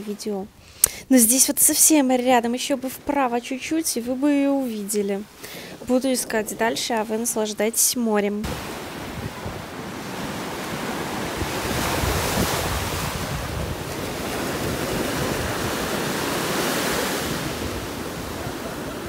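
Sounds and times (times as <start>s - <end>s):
waves washing ashore: 2.6s - 7.8s, 8.4s - 19.0s
wind rumbling on microphone: 5.5s - 7.3s, 8.4s - 19.0s.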